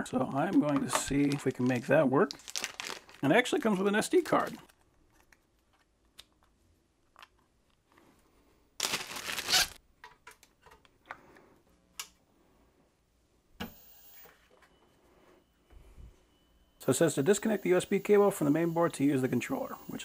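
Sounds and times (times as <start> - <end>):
cables rustling: 0.4 - 11.5
faint high steady tone: 13.7 - 20.0.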